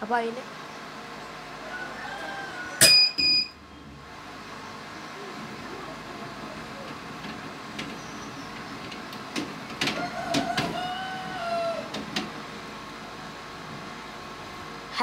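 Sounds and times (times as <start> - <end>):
incubator fans whirring: 0.0 - 15.0
rail squeak: 7.8 - 8.8.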